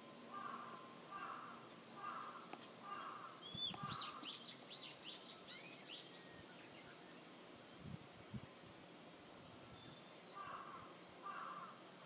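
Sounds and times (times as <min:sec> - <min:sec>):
crow cawing: 0:00.3 - 0:04.3, 0:10.4 - 0:11.8
songbird whistling: 0:03.4 - 0:06.9.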